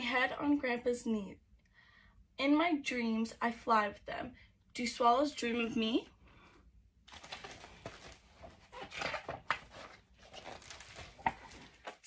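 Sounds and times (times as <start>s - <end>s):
book handling and rustling: 7.1s - 12.0s
page turning: 7.1s - 12.0s.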